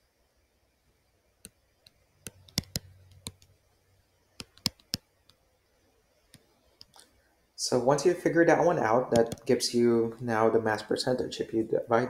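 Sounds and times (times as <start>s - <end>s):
stylus clicking on tablet: 1.4s - 3.7s, 4.3s - 5.5s, 6.2s - 7.1s, 9.1s - 9.6s.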